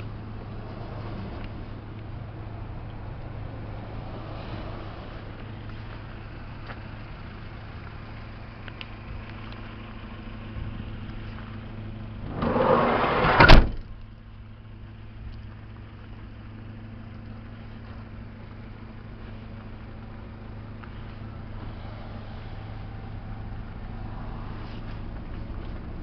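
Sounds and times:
van engine idling: 0:00.0 - 0:26.0
sliding van door slamming shut: 0:12.3 - 0:13.9.

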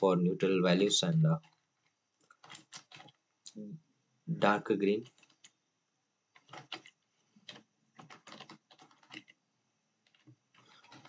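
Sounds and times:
keyboard typing: 0:02.3 - 0:03.1, 0:06.4 - 0:09.4, 0:10.1 - 0:11.0.

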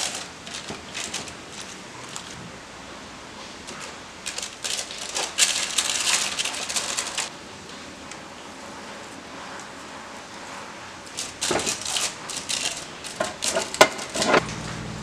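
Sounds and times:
baking paper crinkling: 0:00.0 - 0:02.6, 0:03.4 - 0:07.3, 0:11.0 - 0:14.4.

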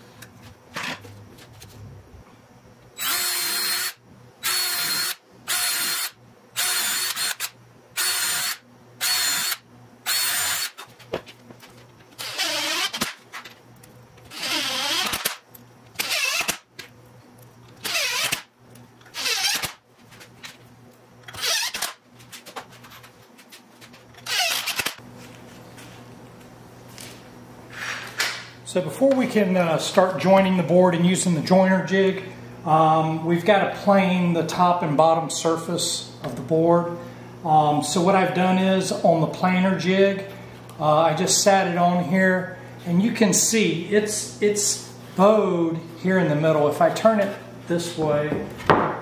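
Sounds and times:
cordless drill running: 0:03.0 - 0:10.9, 0:12.2 - 0:13.2, 0:14.3 - 0:15.4, 0:16.0 - 0:16.6, 0:17.8 - 0:18.5, 0:19.1 - 0:19.8, 0:21.3 - 0:22.0, 0:24.2 - 0:25.0.

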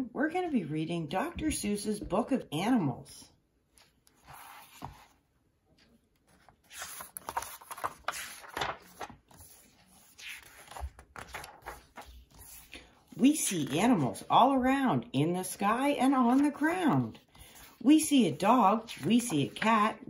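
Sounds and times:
book pages turning: 0:03.7 - 0:14.4, 0:15.6 - 0:20.0.

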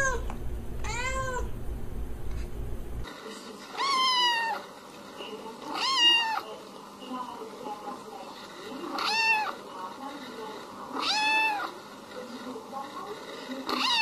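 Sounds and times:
cat meowing: 0:00.0 - 0:01.5, 0:03.8 - 0:04.6, 0:05.7 - 0:06.4, 0:08.9 - 0:09.6, 0:11.0 - 0:11.7, 0:13.7 - 0:14.0
kitten meowing: 0:00.0 - 0:01.5, 0:11.0 - 0:11.6.

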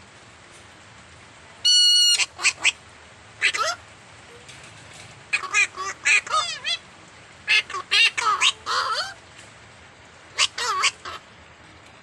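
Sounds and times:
parrots squawking: 0:01.6 - 0:02.8, 0:03.4 - 0:03.8, 0:05.3 - 0:06.8, 0:07.4 - 0:09.2, 0:10.3 - 0:11.3.

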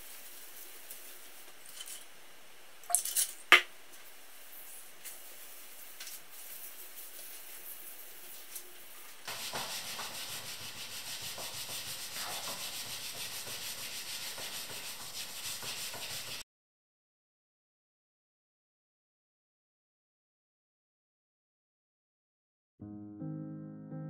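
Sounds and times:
cloth wiping metal: 0:09.3 - 0:16.4
scouring pad scrubbing: 0:09.3 - 0:16.4.

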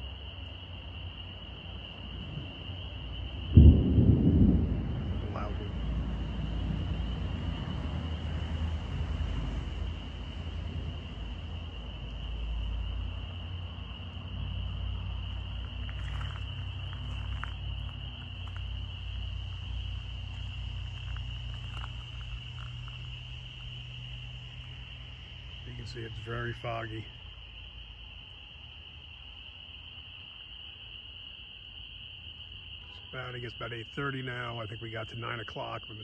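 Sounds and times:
insects trilling: 0:00.0 - 0:36.0
distant thunder rumbling: 0:02.1 - 0:13.2.

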